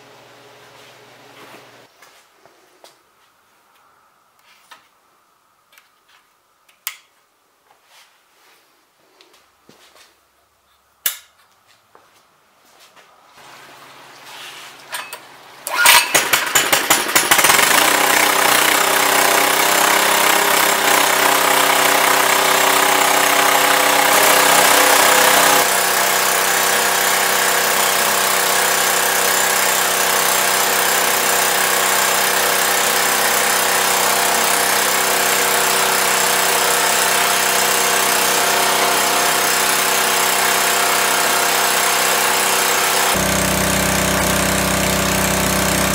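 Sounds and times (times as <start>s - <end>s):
small gasoline engine running: 16.2s - 45.9s.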